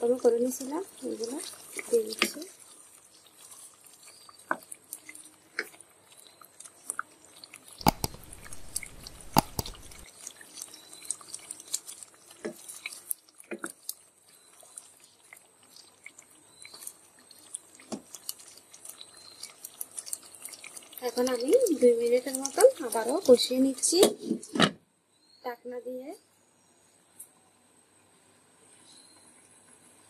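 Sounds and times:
spatula stirring thick gravy: 0.4 - 24.1.

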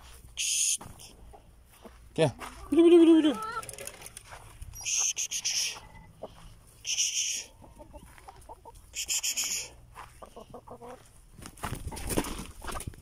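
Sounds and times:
hens clucking: 0.0 - 13.0.

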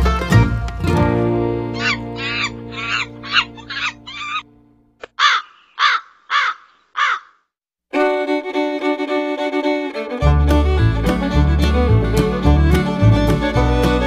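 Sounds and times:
music with fiddle: 0.0 - 3.8, 7.9 - 14.0
bird cawing: 1.8 - 7.5
bass beat: 10.2 - 14.0.

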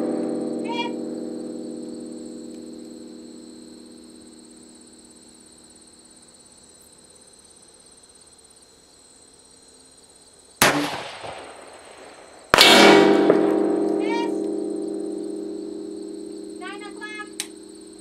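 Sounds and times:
bullet striking steel plate: 0.0 - 4.8, 10.6 - 16.6
steel plate ringing: 0.0 - 5.0, 11.3 - 18.0
rifle shot: 10.6 - 14.7.

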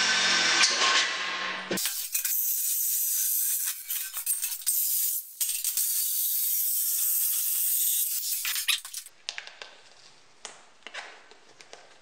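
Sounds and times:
jigsaw cutting sheet steel: 0.0 - 9.1.

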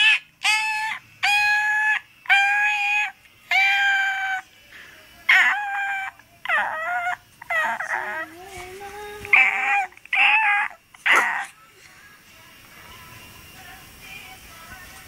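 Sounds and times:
high-pitched whining cries: 0.0 - 4.6, 5.3 - 11.7.

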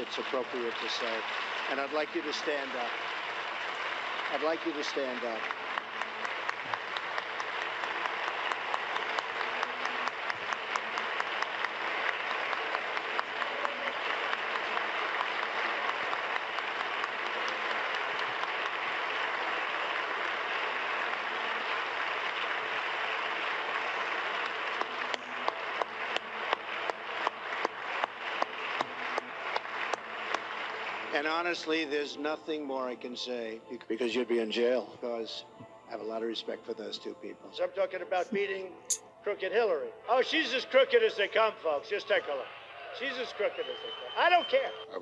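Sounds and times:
crowd applauding: 0.0 - 31.8, 42.1 - 45.0
close separate claps: 5.4 - 31.0.

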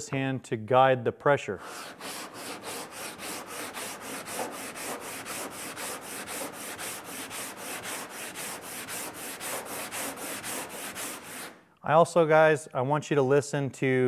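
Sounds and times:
sandpaper rasping on filler: 1.6 - 11.6.

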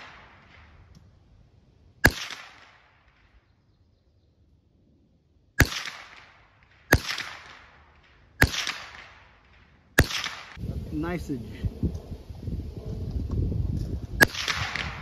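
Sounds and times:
gunshot echo: 0.0 - 0.9, 2.0 - 3.3, 5.6 - 10.6, 14.2 - 15.0
rifle shots: 0.0 - 0.9, 2.0 - 3.4, 5.6 - 10.6, 14.2 - 15.0.

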